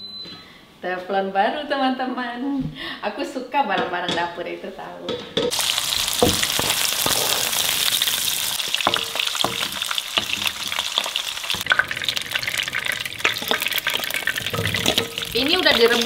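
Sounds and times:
hot oil sizzling and crackling: 0:05.5 - 0:16.0.

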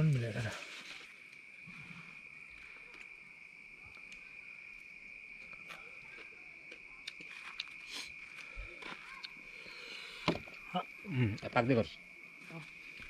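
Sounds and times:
night insects chorus: 0:00.0 - 0:13.0
eating clicks and crunches: 0:05.4 - 0:09.4.

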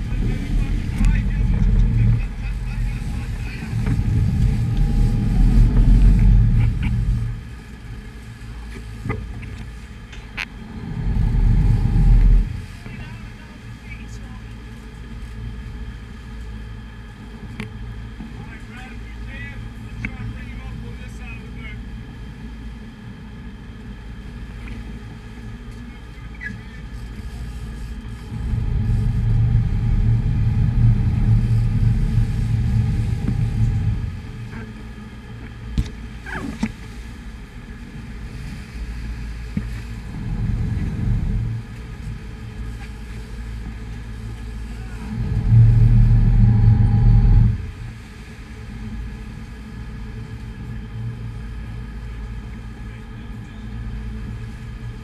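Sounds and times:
wind on camera: 0:00.0 - 0:13.6, 0:25.7 - 0:51.9
boat engines rumbling: 0:00.0 - 0:55.0
churning wake: 0:00.0 - 0:55.0.

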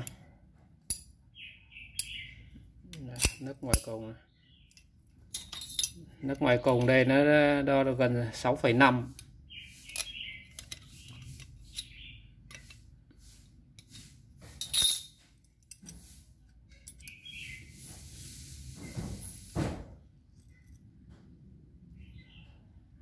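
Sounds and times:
bird chirping: 0:01.2 - 0:03.1, 0:03.9 - 0:04.9, 0:09.3 - 0:12.5, 0:16.7 - 0:18.1, 0:21.9 - 0:23.0
metal tools clinking: 0:04.7 - 0:07.0, 0:14.6 - 0:17.4.

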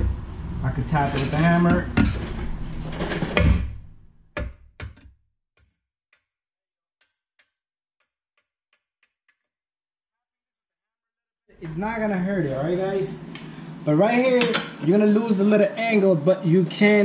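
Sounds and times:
hammer tapping metal: 0:07.0 - 0:09.5.

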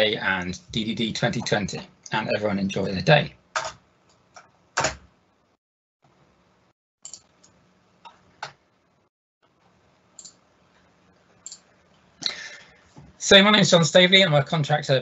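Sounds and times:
computer mouse clicks: 0:07.0 - 0:08.6, 0:10.2 - 0:10.4, 0:11.4 - 0:11.7.

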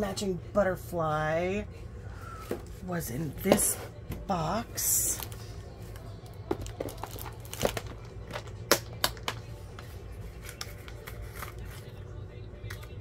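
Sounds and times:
low steady hum: 0:00.0 - 0:13.0
paper stickers rustling: 0:06.5 - 0:12.0.

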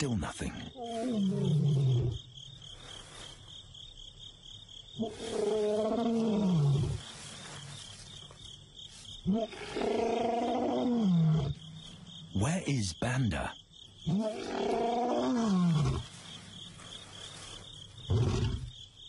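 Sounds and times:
insects chirping: 0:00.0 - 0:19.0
lion roaring: 0:05.0 - 0:07.0, 0:09.3 - 0:11.6, 0:14.1 - 0:16.2, 0:18.1 - 0:18.8.

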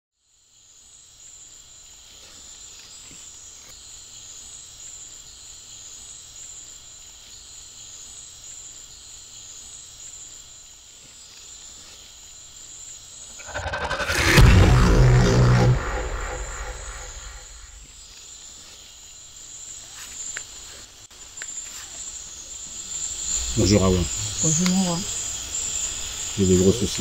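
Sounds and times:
faint low drone: 0:13.4 - 0:17.9
rush of noise and deep boom: 0:13.4 - 0:17.9
insects chirring: 0:18.0 - 0:27.0.

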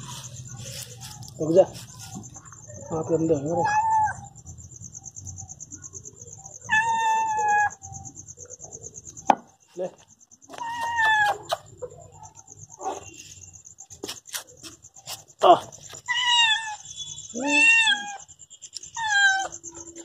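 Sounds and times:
cat meowing: 0:03.6 - 0:04.3, 0:06.7 - 0:07.8, 0:10.6 - 0:11.6, 0:16.1 - 0:18.3, 0:18.9 - 0:19.6.

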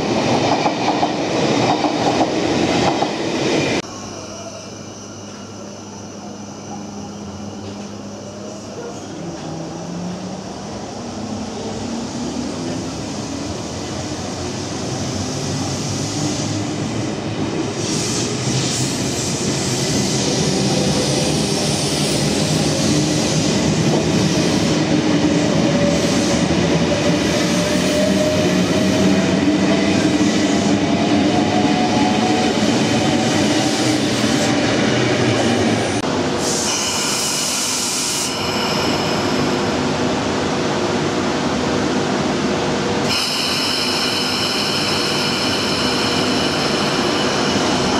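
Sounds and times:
train wheels rumbling on rails: 0:00.0 - 0:03.9.

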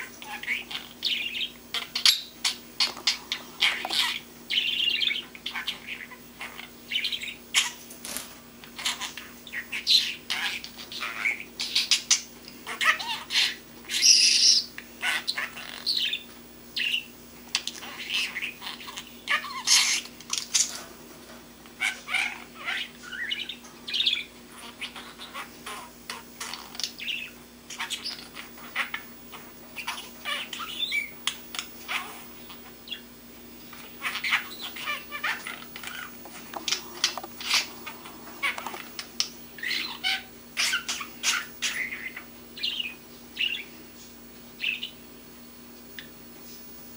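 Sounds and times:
budgie chirping and warbling: 0:00.0 - 0:07.8, 0:08.8 - 0:20.9, 0:21.8 - 0:33.1, 0:33.7 - 0:43.7.

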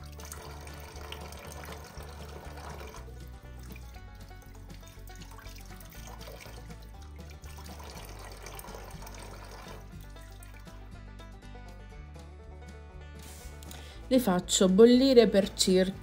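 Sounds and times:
tap water running into sink: 0:00.0 - 0:10.9
background music: 0:00.0 - 0:16.0.

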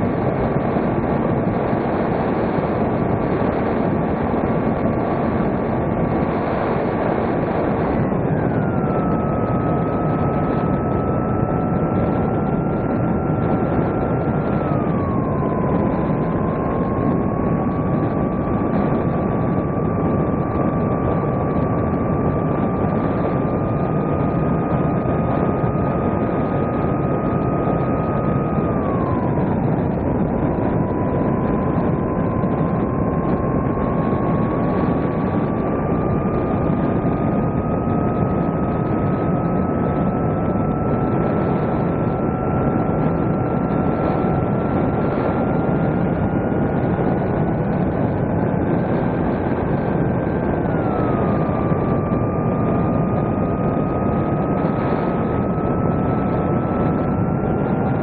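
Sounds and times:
electric motor whine: 0:00.0 - 0:58.0
steady rushing noise: 0:00.0 - 0:58.0.

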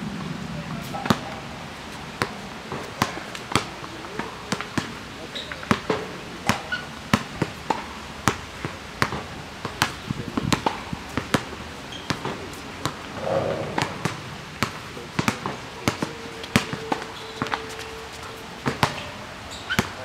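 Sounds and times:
basketball bouncing on asphalt: 0:02.2 - 0:05.0, 0:05.7 - 0:13.0, 0:13.7 - 0:17.9, 0:18.6 - 0:20.0.

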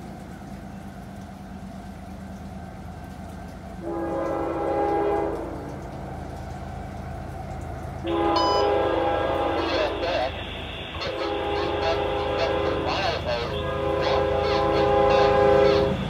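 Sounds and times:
low steady rumble: 0:00.0 - 0:16.0
train air horn blasts: 0:03.8 - 0:05.6, 0:08.0 - 0:16.0.

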